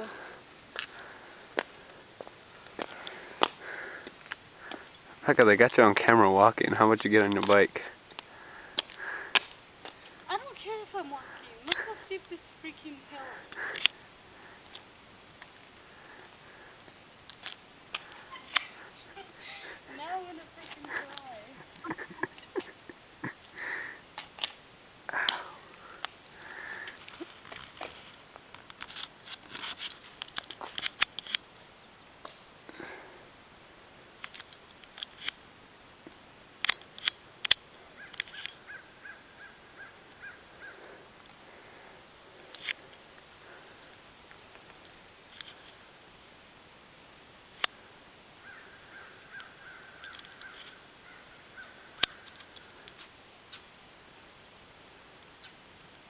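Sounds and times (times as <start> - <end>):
high-pitched insect drone: 0.0 - 46.0
repeated insect chirps: 0.0 - 56.0.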